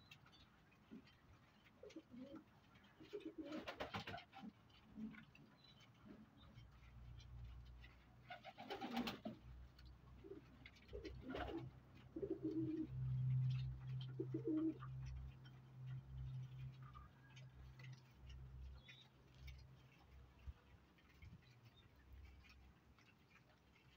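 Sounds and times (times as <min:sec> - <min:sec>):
pigeons cooing: 0:01.8 - 0:02.4, 0:03.0 - 0:05.2, 0:08.3 - 0:09.4, 0:10.2 - 0:15.2.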